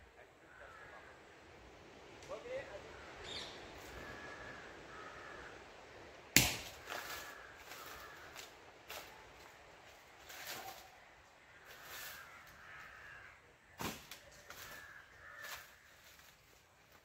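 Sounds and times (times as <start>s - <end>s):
crows cawing: 0.3s - 1.5s, 2.5s - 9.5s, 10.3s - 16.6s.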